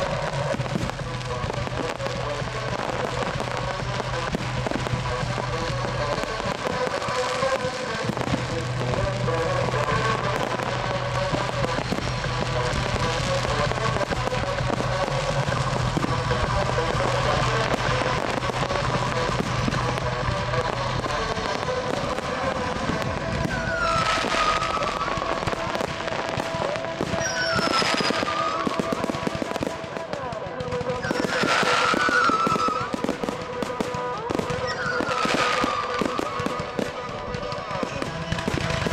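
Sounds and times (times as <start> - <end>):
fireworks crackling and banging: 0.0 - 38.9
music soundtrack: 0.0 - 38.9
firework whistles falling in pitch: 23.4 - 25.5, 27.0 - 29.5, 31.0 - 33.2, 34.5 - 37.5.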